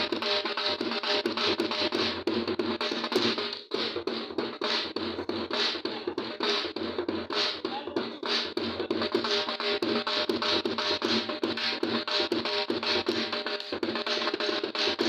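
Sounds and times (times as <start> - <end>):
dhol drum dance rhythm: 0.0 - 15.0.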